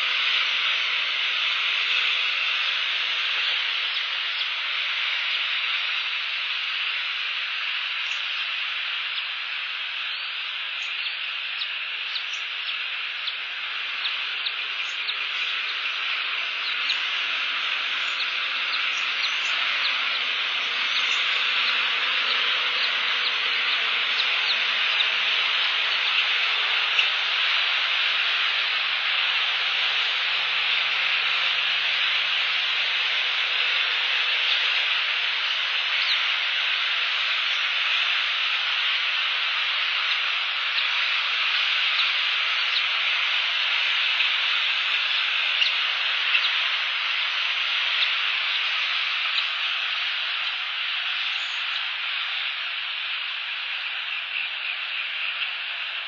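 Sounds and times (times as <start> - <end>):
steady rain hiss: 0.0 - 56.0.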